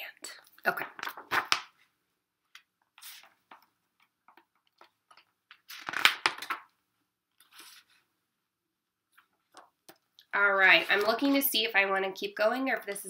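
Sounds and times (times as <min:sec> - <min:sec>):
book pages rustling: 0:02.5 - 0:06.7, 0:07.3 - 0:08.1.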